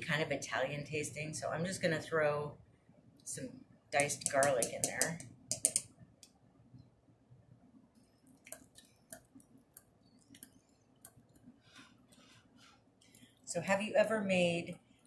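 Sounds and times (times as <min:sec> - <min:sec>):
utensil tapping against bowl: 0:04.0 - 0:05.9.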